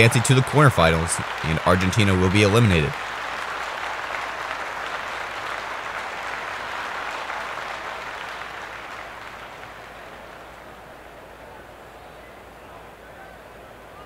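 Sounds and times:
crowd applause: 0.0s - 14.0s.

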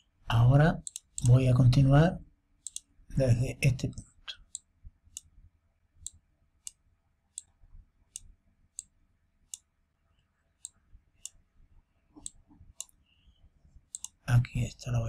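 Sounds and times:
mouse button clicking: 0.8s - 1.4s, 13.9s - 14.2s.

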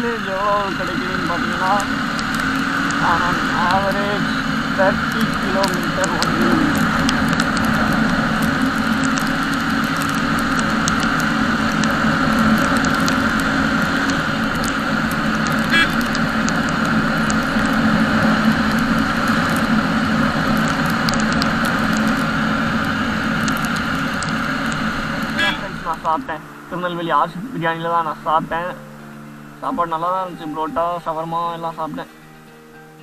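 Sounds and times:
wind rush on microphone: 0.0s - 26.4s
motorcycle engine: 0.0s - 26.5s.

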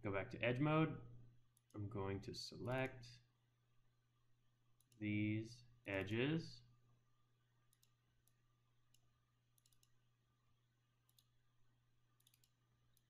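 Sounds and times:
computer mouse clicks: 7.7s - 10.0s, 11.1s - 11.3s, 12.2s - 13.0s.

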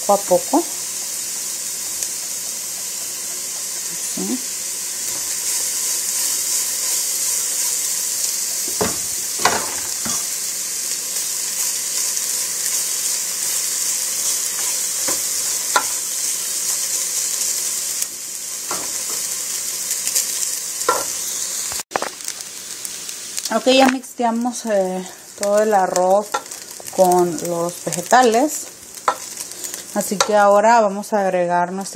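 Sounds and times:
food sizzling in hot oil: 0.0s - 31.9s
spoon scraping and knocking pot: 20.9s - 21.2s.

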